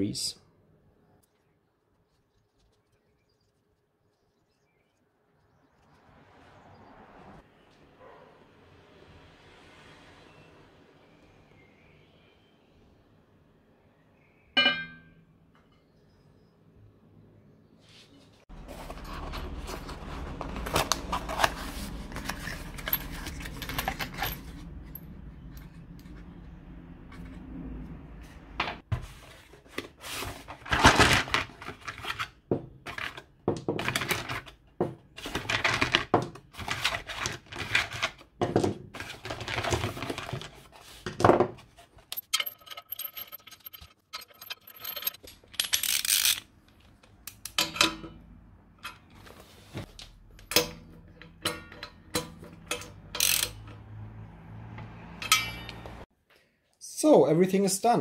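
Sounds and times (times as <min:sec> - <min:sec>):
steel bolts clinking: 0:42.1 - 0:46.4, 0:50.4 - 0:53.8, 0:55.2 - 0:55.9.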